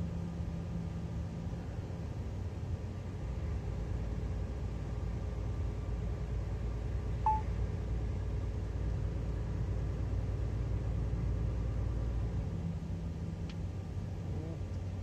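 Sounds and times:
truck engine and road rumble: 0:00.0 - 0:15.0
short electronic beep: 0:07.3 - 0:07.5.

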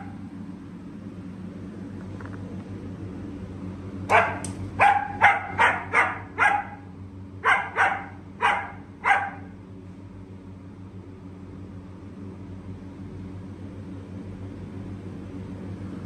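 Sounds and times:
low hum: 0:00.0 - 0:16.0
dog barking: 0:04.1 - 0:09.5.

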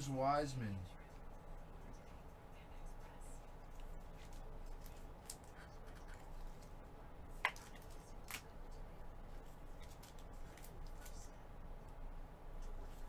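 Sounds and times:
trading cards rustling: 0:09.7 - 0:11.3.

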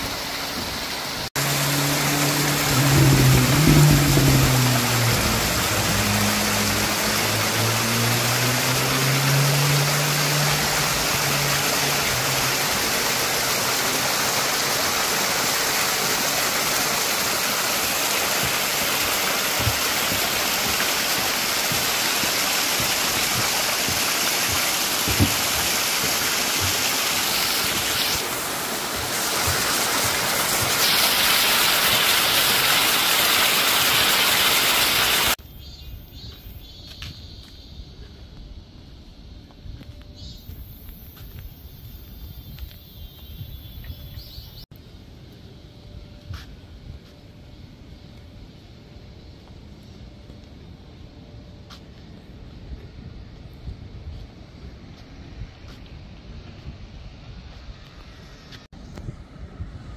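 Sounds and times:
stream rushing over rocks: 0:00.0 - 0:35.4
low wavering hum: 0:01.4 - 0:12.5.

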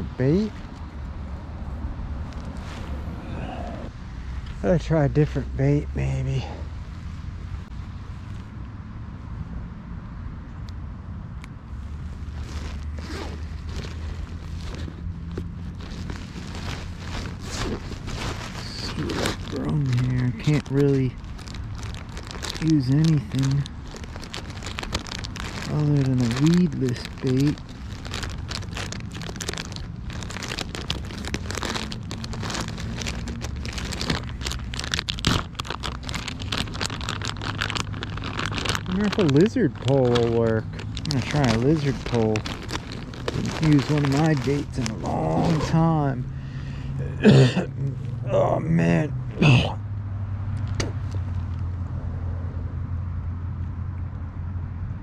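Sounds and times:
steady low rumble: 0:00.0 - 0:55.0
hands rummaging in a bag: 0:12.3 - 0:46.2
plastic package crinkling: 0:12.3 - 0:46.2.

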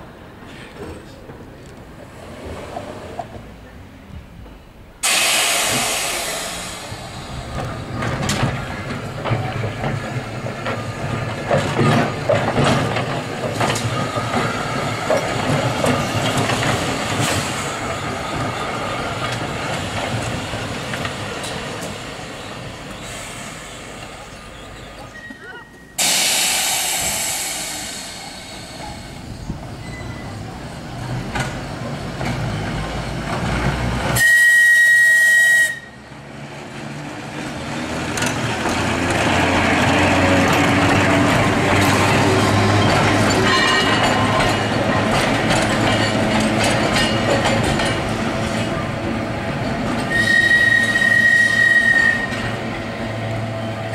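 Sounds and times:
tram rumbling on rails: 0:00.0 - 0:53.9
air hissing: 0:05.0 - 0:07.4, 0:26.0 - 0:29.5
tram whistle blast: 0:34.2 - 0:36.0, 0:43.4 - 0:44.2, 0:50.0 - 0:52.6.

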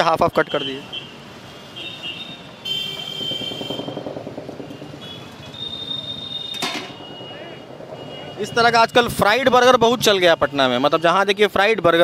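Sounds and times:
vehicle horns: 0:00.4 - 0:08.8
engine drone: 0:02.4 - 0:10.2
sharp knock: 0:03.2 - 0:08.3.

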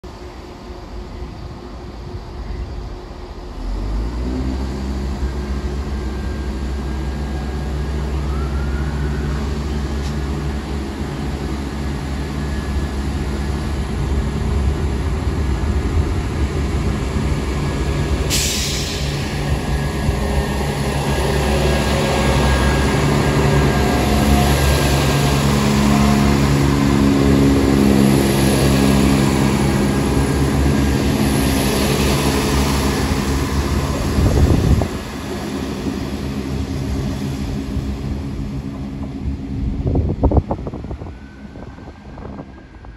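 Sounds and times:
diesel train engines throttling up: 0:00.0 - 0:42.9
sharp hiss: 0:18.2 - 0:19.6.

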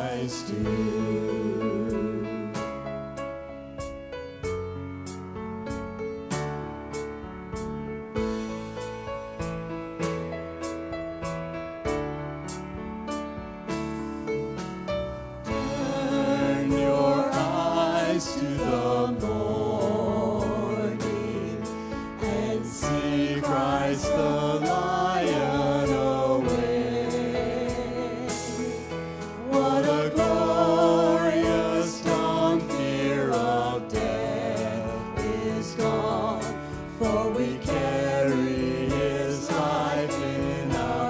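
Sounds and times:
man and women singing: 0:00.0 - 0:02.7, 0:15.5 - 0:41.0
worship band playing: 0:00.0 - 0:41.0.

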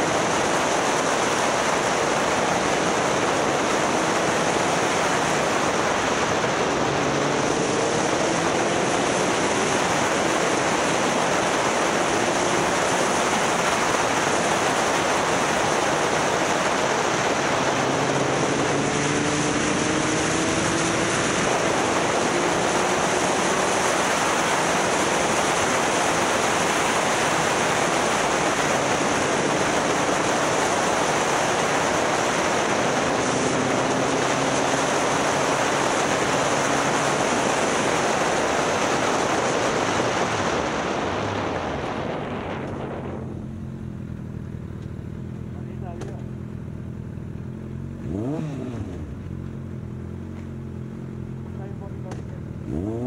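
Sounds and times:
wind rush over microphone: 0:00.0 - 0:43.8
motorcycle engine: 0:00.0 - 0:53.0.

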